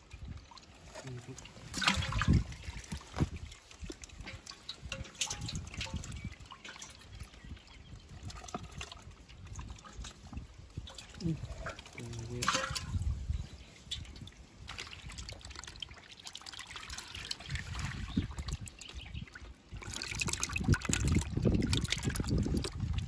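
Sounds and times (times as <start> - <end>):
fish thrashing in water: 0.2 - 23.0.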